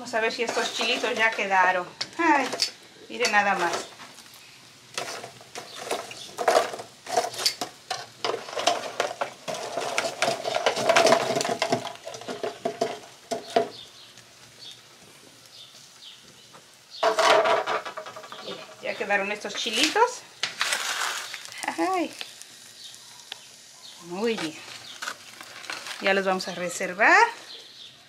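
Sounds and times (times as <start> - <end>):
cookware and utensils clattering: 0.1 - 4.0, 5.0 - 13.8, 17.0 - 20.8.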